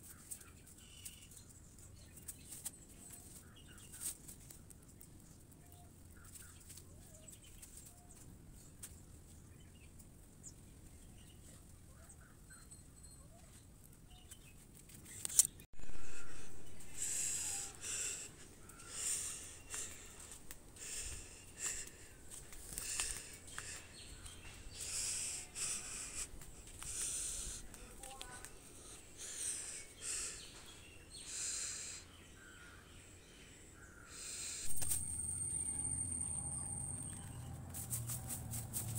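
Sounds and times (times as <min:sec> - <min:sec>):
faint bird chirps: 0:09.6 - 0:22.0, 0:27.0 - 0:38.0
footsteps crunching on dry leaves: 0:15.8 - 0:29.0, 0:37.2 - 0:38.9.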